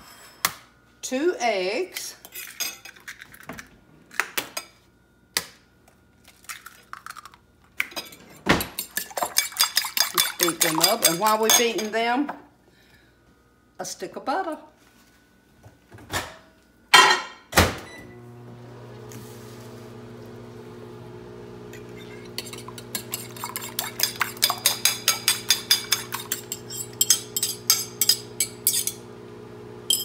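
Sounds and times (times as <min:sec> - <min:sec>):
fork beating eggs in bowl: 0:08.8 - 0:11.9, 0:21.8 - 0:29.0
microwave humming: 0:16.9 - 0:30.0.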